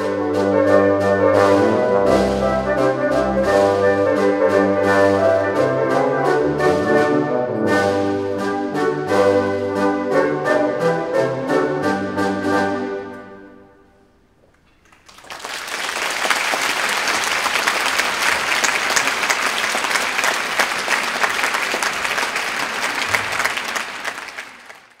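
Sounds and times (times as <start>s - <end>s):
horn band chord: 0.0s - 14.1s
audience applause: 14.8s - 25.0s.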